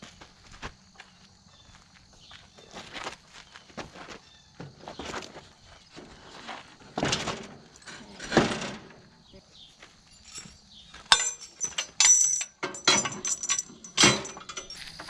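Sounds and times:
metallic clinks and rattles: 10.0 - 15.0.

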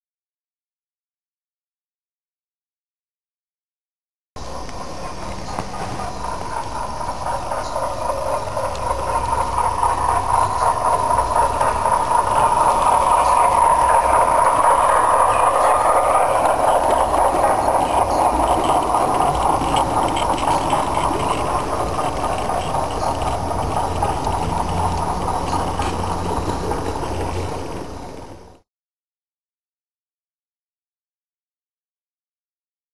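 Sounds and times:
model train wheels rattling on rails: 4.4 - 28.6.

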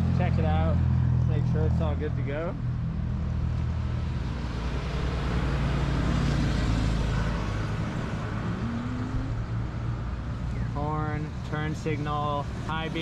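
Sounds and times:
vehicle engine running: 0.0 - 4.1
tyre and road noise: 0.0 - 13.0.

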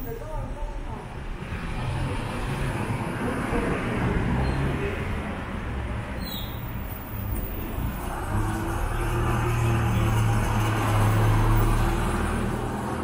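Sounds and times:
motor traffic noise: 0.0 - 13.0.

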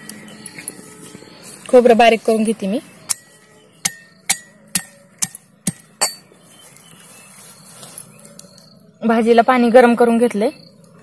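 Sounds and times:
pestle striking brass mortar: 3.1 - 6.3.

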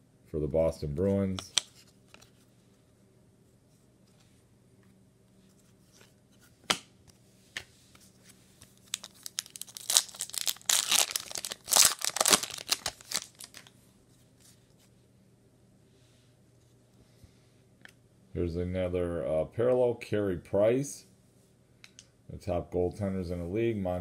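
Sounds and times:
foil wrapper crinkling: 8.8 - 13.7.

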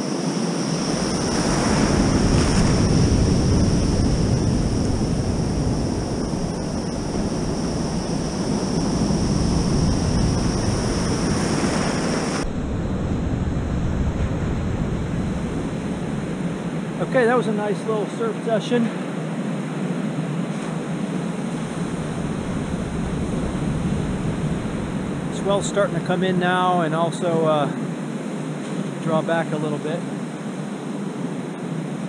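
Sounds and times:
wind on microphone: 0.0 - 18.1, 19.0 - 29.1
breaking surf: 0.0 - 19.1.

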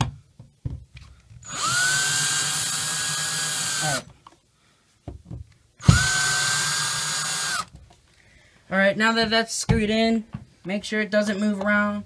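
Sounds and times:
cordless drill motor whine: 1.4 - 4.1, 5.8 - 7.7.

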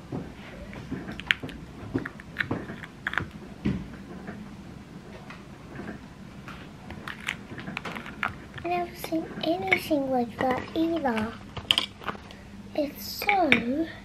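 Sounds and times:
chocolate shells clicking and tapping: 11.6 - 12.3.

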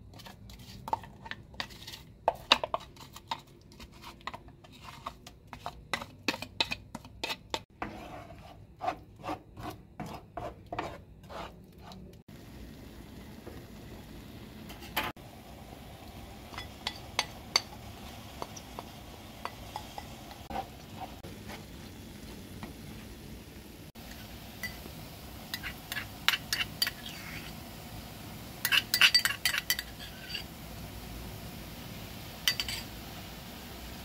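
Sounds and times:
metal spoon clinking bowl: 16.5 - 17.8, 19.4 - 20.4, 24.6 - 24.9, 28.6 - 30.5, 32.4 - 32.9.

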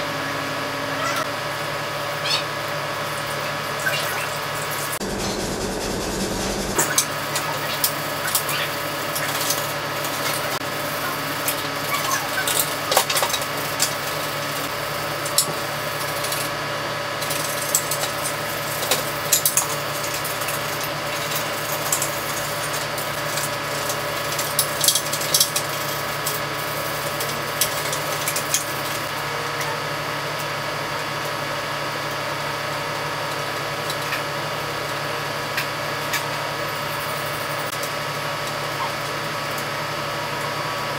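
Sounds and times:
small electric motor humming: 5.0 - 6.8.

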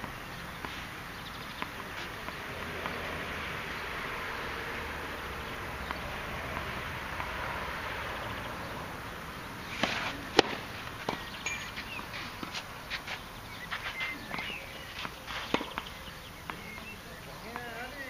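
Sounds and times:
tennis ball struck: 0.0 - 4.1, 5.5 - 7.4, 9.6 - 12.6, 14.2 - 16.9.

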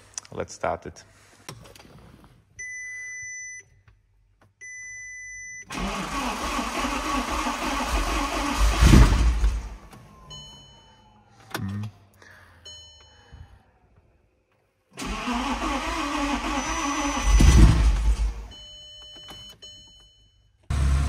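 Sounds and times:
dashboard warning beeps: 2.6 - 3.8, 4.6 - 5.7, 10.0 - 11.7, 16.2 - 17.6, 18.4 - 20.7
car engine cranking and idling: 5.7 - 10.1, 15.0 - 18.6, 20.7 - 21.0.

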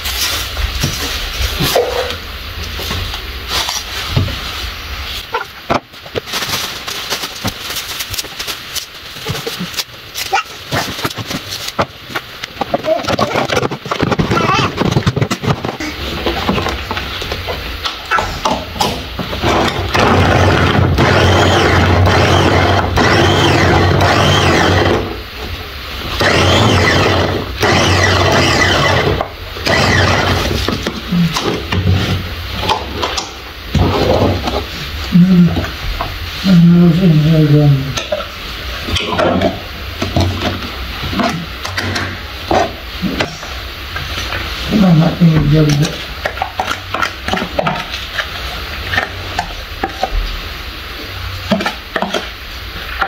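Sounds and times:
electric food chopper running: 18.8 - 25.2, 26.1 - 31.0.

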